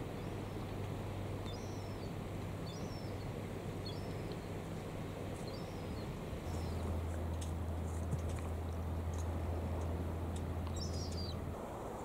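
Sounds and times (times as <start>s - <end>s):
steady low hum: 0.0s - 12.0s
small bird chirping: 1.5s - 3.2s, 3.8s - 4.5s, 10.7s - 11.4s.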